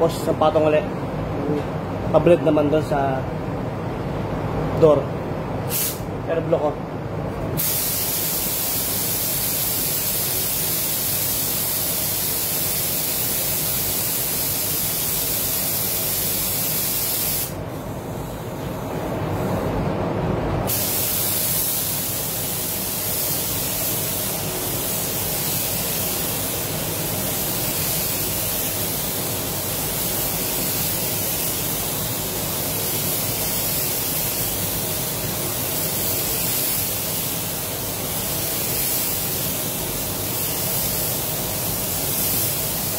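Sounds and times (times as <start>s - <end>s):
paint spray gun hissing: 5.7s - 6.0s, 7.6s - 17.6s, 20.7s - 42.9s.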